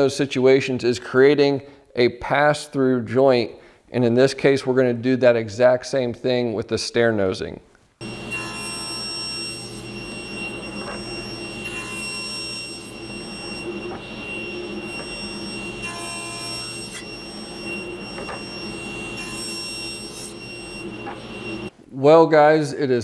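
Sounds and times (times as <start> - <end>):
table saw running: 8.0 - 21.7.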